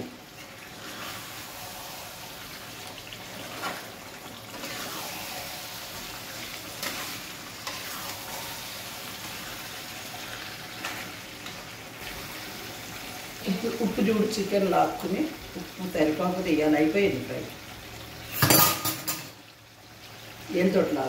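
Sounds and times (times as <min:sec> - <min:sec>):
chicken sizzling in a pan: 0:00.0 - 0:21.0
metal spatula scraping a pan: 0:03.4 - 0:09.4.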